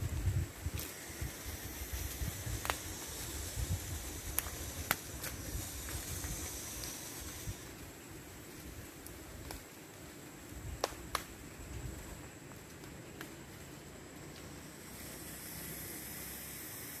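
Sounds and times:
wind rumble on microphone: 0.0 - 9.7, 10.3 - 12.4
steady high hiss: 0.0 - 17.0
twigs snapping: 4.2 - 5.4, 9.0 - 9.7, 10.8 - 11.4.

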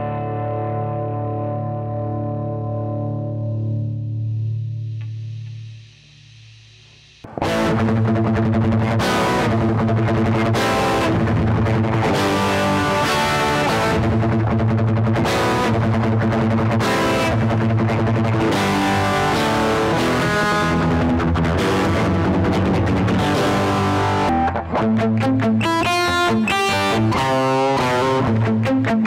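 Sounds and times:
distorted electric guitar riff: 0.0 - 29.0.

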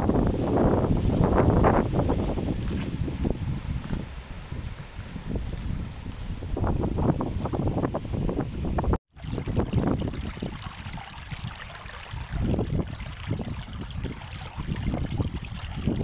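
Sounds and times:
wind rumbling on microphone: 0.0 - 16.0
stream running over stones: 9.2 - 16.0.

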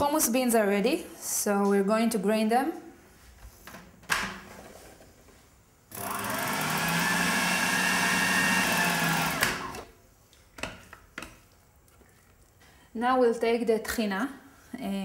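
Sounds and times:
food processor motor grinding: 5.9 - 9.9.

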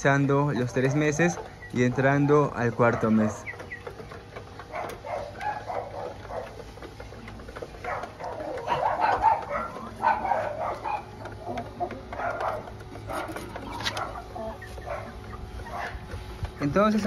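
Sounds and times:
chickens calling: 0.0 - 17.0.

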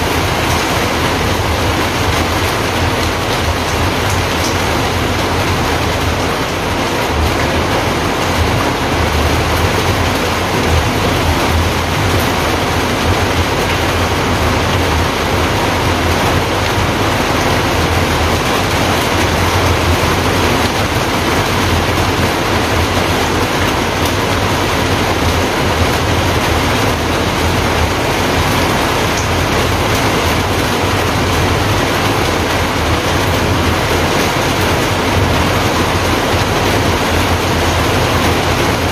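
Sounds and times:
steady rushing noise: 0.0 - 38.9.

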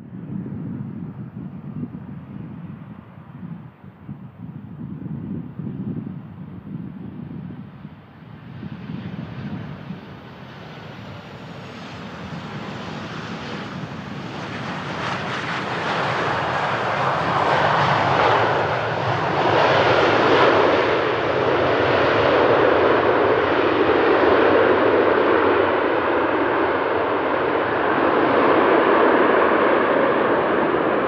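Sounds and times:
jet engines in reverse thrust: 6.8 - 31.0.

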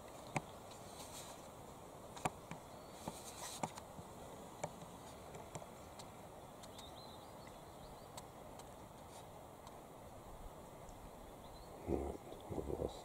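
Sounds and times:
faint chirp: 2.6 - 3.2, 6.4 - 8.2, 10.8 - 13.0.

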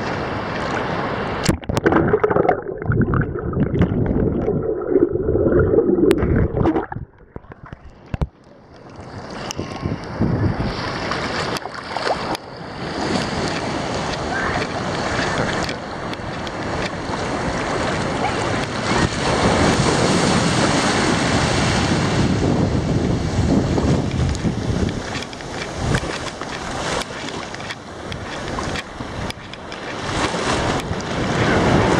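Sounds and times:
wind on microphone: 1.5 - 8.3, 9.1 - 11.5, 12.8 - 31.9.

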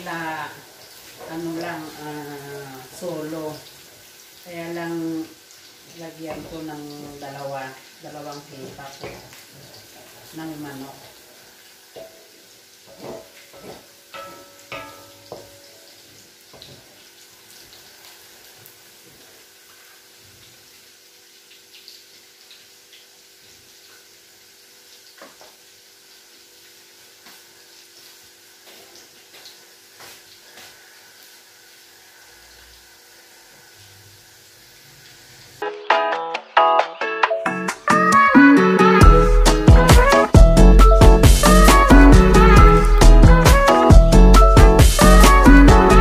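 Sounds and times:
garlic sizzling in oil: 0.0 - 35.6
wooden spoon scraping wok: 12.9 - 15.8.

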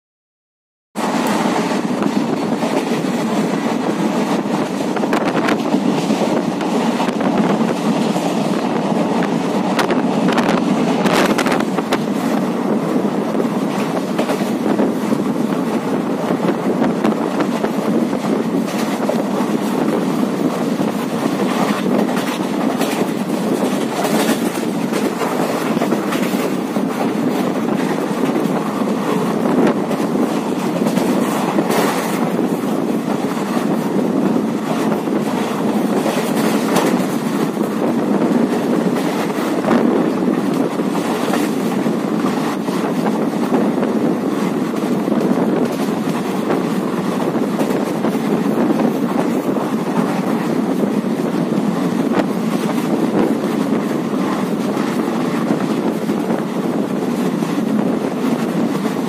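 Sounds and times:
train wheels rumbling on rails: 1.0 - 59.0
clacks over rail joints: 13.4 - 59.0.

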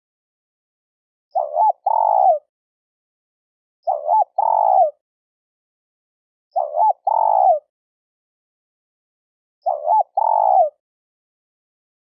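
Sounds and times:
dove cooing: 1.3 - 2.5, 3.8 - 5.0, 6.6 - 7.7, 9.6 - 10.8.

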